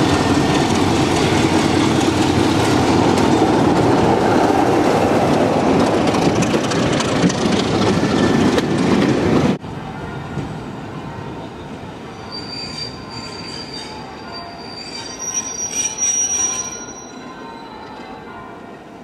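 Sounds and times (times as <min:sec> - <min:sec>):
train rumble: 0:00.0 - 0:14.6
loud diesel train: 0:00.0 - 0:19.0
wheels squealing on rails: 0:11.4 - 0:18.8.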